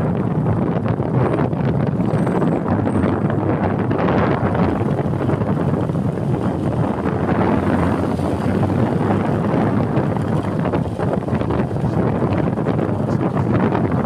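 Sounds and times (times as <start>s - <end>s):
motorcycle engine running: 0.0s - 14.0s
road noise: 0.0s - 14.0s
wind buffeting microphone: 0.0s - 14.0s.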